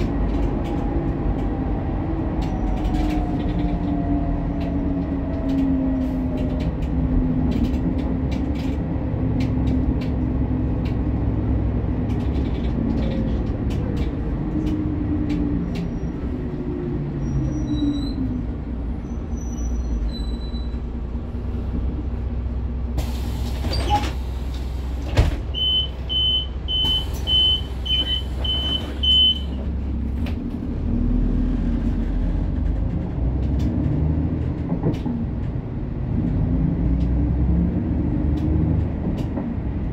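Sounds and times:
bus engine running: 0.0s - 39.9s
door warning beeps: 25.5s - 29.6s.

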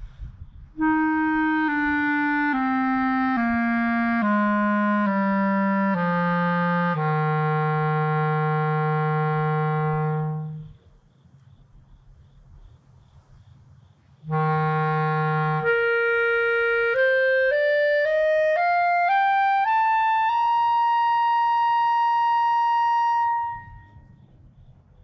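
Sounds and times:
clarinet playing a scale: 0.8s - 10.8s, 14.3s - 24.1s.

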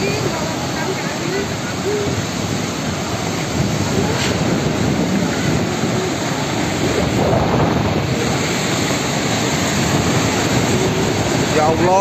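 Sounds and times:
strong wind buffeting microphone: 0.0s - 12.0s.

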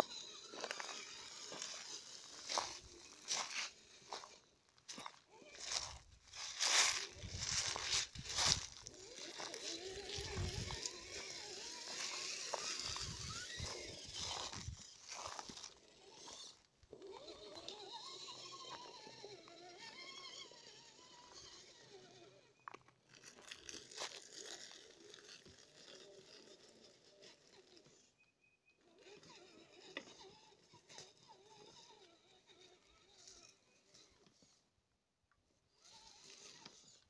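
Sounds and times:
tyres crunching over leaves: 0.0s - 19.2s, 23.1s - 27.6s
electric motor whining: 0.0s - 22.6s, 28.8s - 34.5s, 35.7s - 37.0s.

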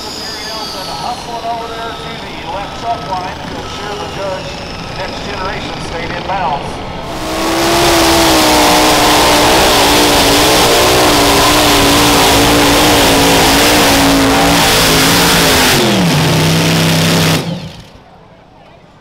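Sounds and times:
announcer speaking: 0.0s - 7.0s
pulling tractor engines at full throttle: 0.0s - 18.2s.

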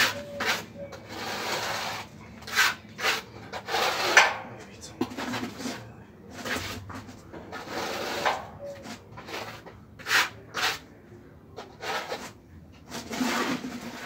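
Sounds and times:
plastering float scraping render: 0.0s - 4.4s, 5.0s - 14.0s.

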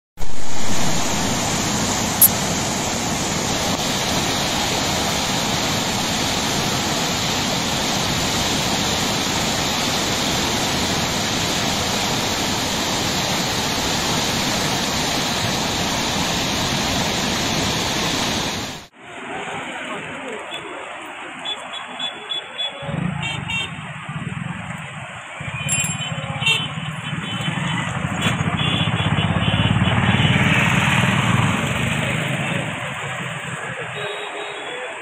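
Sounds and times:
river rushing: 0.2s - 26.0s.

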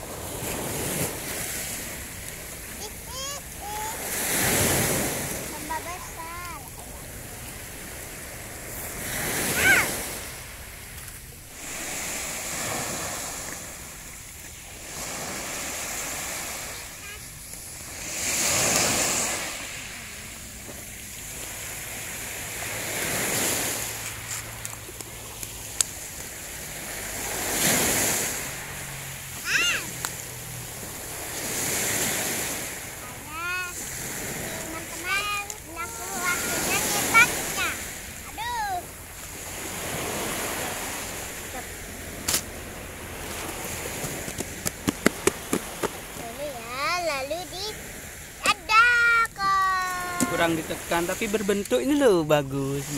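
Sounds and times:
waves washing on sandy shore: 0.0s - 52.9s
high-pitched cry: 9.5s - 10.0s, 29.4s - 29.9s, 48.7s - 50.4s.

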